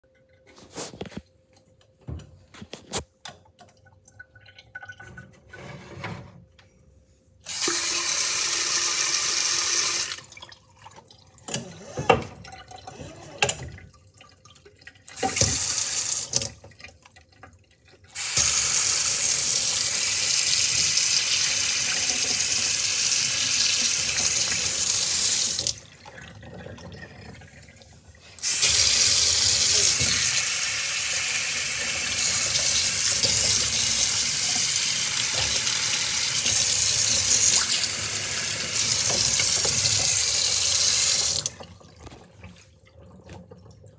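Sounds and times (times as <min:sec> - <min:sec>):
faucet running into steel sink: 0:07.5 - 0:16.7, 0:17.7 - 0:41.8.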